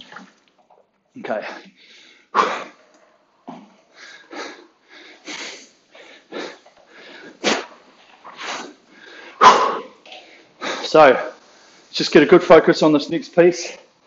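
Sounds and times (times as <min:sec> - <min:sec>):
man breathing hard: 0:01.6 - 0:02.8, 0:03.9 - 0:07.4, 0:08.9 - 0:09.4.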